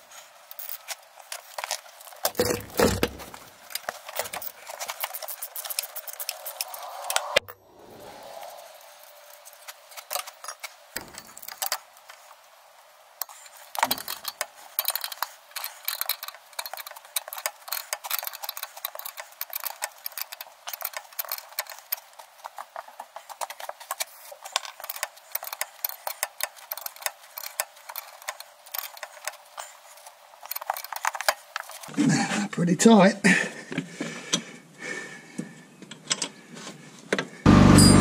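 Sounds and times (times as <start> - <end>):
ratcheting spanner clicking: 13.8 - 22.1, 24.6 - 29.4.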